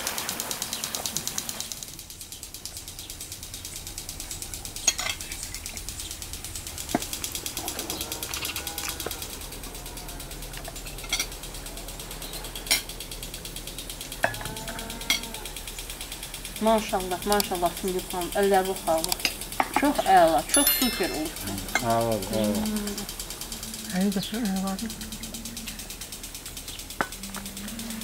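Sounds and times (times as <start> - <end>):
insects chirring: 0.6 - 28.0
forks and glasses clinking: 4.9 - 5.3, 11.0 - 11.4, 20.4 - 21.9.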